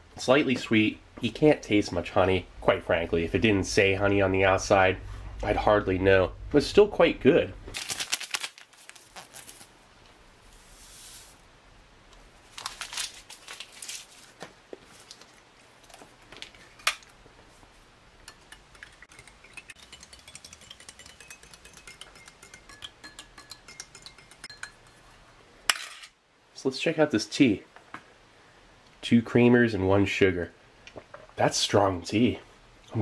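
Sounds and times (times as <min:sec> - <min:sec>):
spoon clinking against glass: 0:18.3 - 0:25.0.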